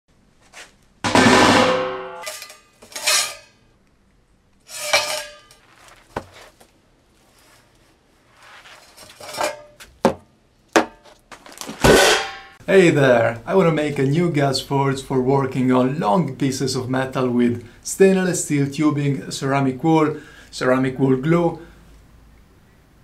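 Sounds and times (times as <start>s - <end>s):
metal tube clanging on workbench: 1.1s - 3.6s, 4.7s - 5.7s, 9.1s - 9.8s, 11.8s - 12.6s
knocks and rustles of materials: 4.8s - 12.4s.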